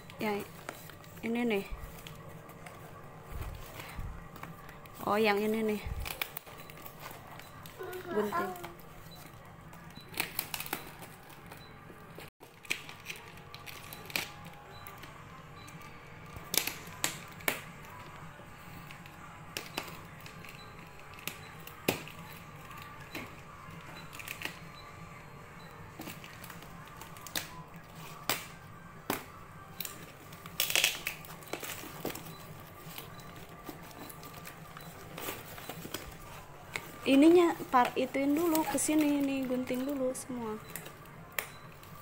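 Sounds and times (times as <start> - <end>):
faint background music: 0.0 - 42.0.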